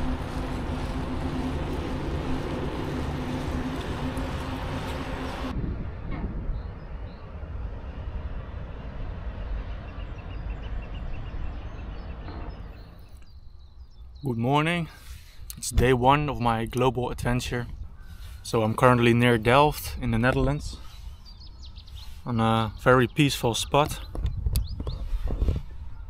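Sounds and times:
wind rushing over microphone: 0.0 - 13.0, 23.6 - 26.0
low rumble: 0.0 - 13.9
bicycle road noise hum: 0.0 - 14.2, 14.9 - 26.0.

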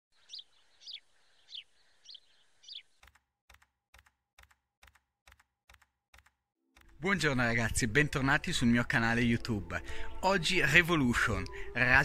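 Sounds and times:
sharp clicks: 3.0 - 7.0.

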